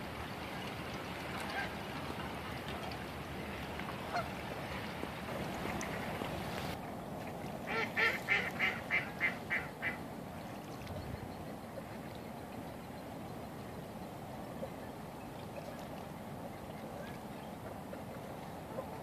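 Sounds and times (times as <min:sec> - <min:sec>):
water washing: 0:00.0 - 0:06.8
waterfowl honking: 0:04.0 - 0:04.9, 0:07.7 - 0:10.0.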